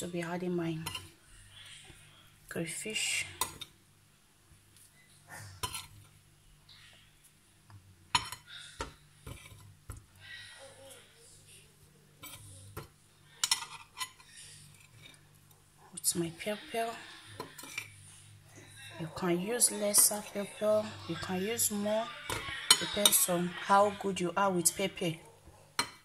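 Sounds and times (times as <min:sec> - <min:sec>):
spoon clinking on a metal pot: 0:22.3 - 0:23.4.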